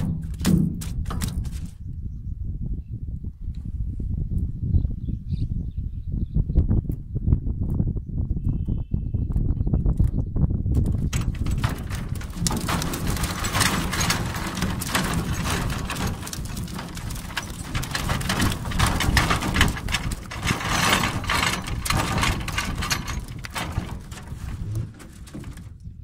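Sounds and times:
wind rumble on microphone: 0.0 - 26.0.

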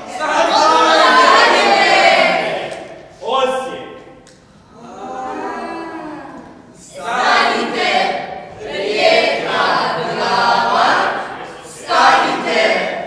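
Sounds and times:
voices singing unaccompanied: 0.0 - 2.9, 4.8 - 13.0.

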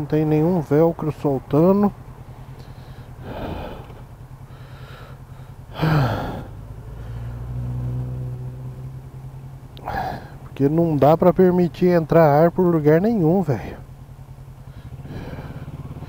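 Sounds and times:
motorcycle engine idling: 0.0 - 7.5, 8.5 - 16.0
passing vehicle engine hum: 0.0 - 16.0
person breathing heavily: 2.6 - 7.4, 9.8 - 10.5, 14.6 - 16.0.

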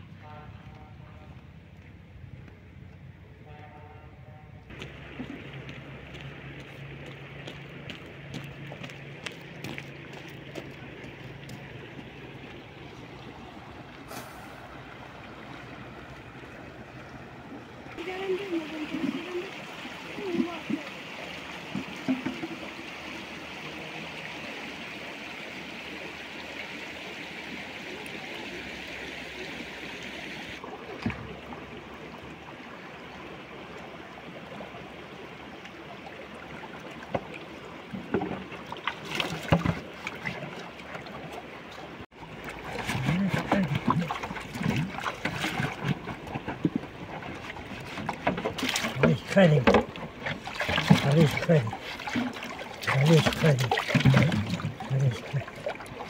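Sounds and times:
stream rushing over stones: 4.7 - 56.0
water gurgling into plastic can: 42.3 - 56.0.

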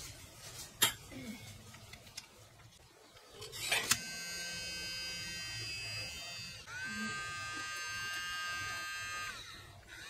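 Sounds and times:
small electric motor whine: 3.5 - 10.0.

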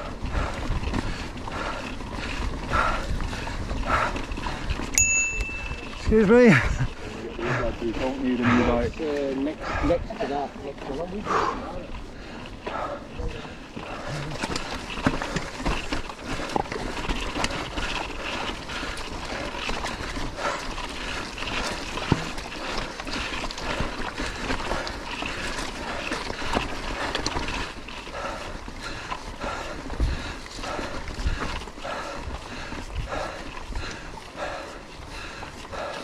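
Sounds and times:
person breathing hard: 0.0 - 5.9, 7.3 - 10.1, 11.2 - 36.0
bike rattling: 0.0 - 36.0
tyres crunching over loose rock: 13.8 - 29.2.

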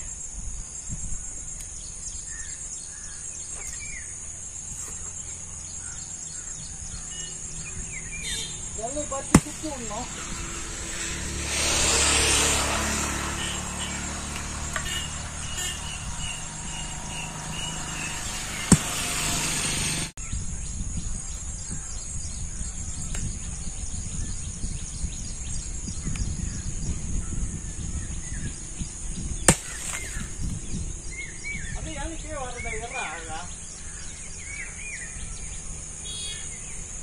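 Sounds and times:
high insect drone: 0.0 - 37.0
bird chirps: 1.6 - 11.0, 25.6 - 36.9
sharp knocks: 9.3 - 10.6, 18.4 - 19.6.

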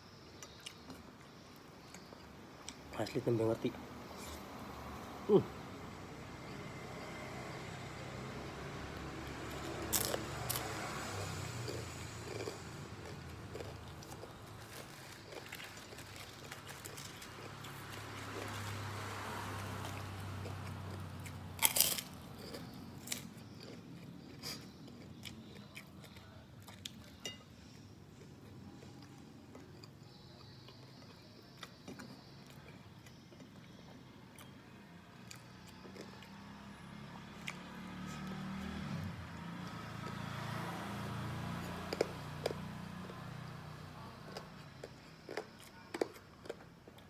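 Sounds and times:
man chewing food: 0.0 - 2.8, 9.5 - 34.6, 35.2 - 36.6, 44.2 - 47.0.

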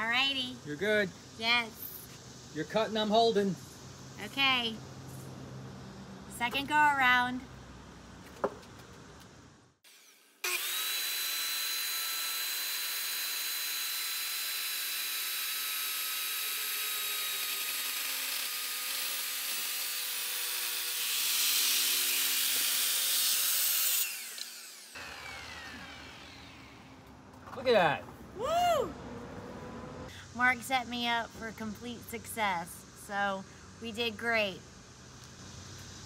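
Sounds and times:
circular saw cutting wood: 9.8 - 27.1.

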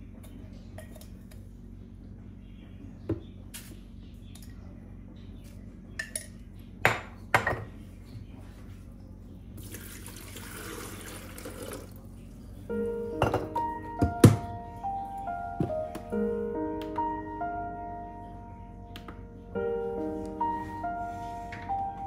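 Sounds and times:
water pouring: 9.6 - 12.0.

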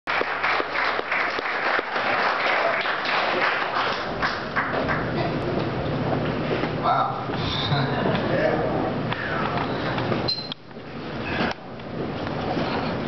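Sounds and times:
audience applauding: 0.1 - 5.4.

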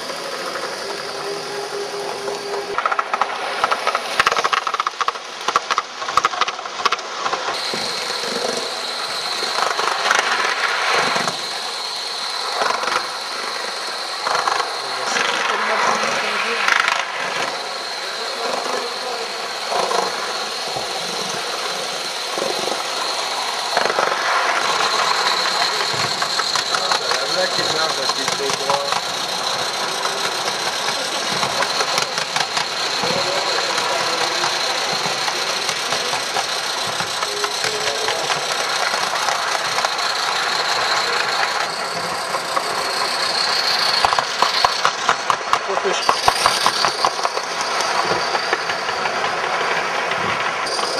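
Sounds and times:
steady high tone: 0.0 - 4.3, 50.6 - 50.9
model steam locomotives running: 0.0 - 50.9.

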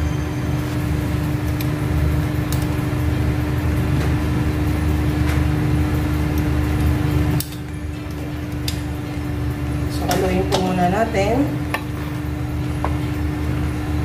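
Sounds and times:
metal tongs clicking on pot: 10.0 - 10.9.

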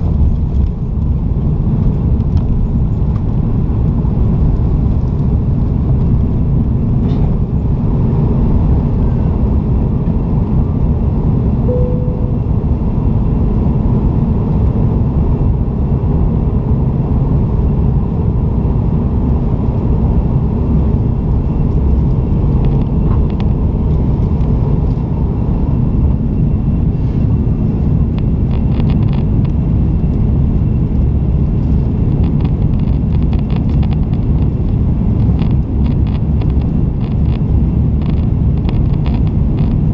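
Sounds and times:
short tone: 11.7 - 12.9.

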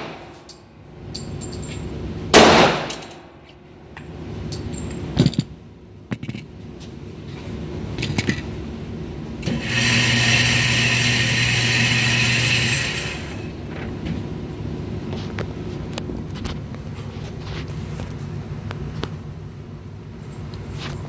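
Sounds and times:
electric motor humming: 9.4 - 13.6.

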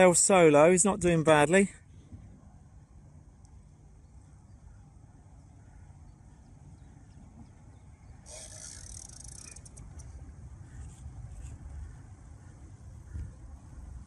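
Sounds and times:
wind rumble on microphone: 6.1 - 14.0
small clicks: 8.3 - 10.2.

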